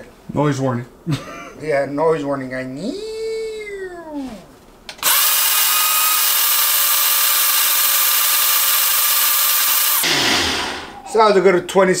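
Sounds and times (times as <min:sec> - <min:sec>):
blender running: 0:05.0 - 0:10.8.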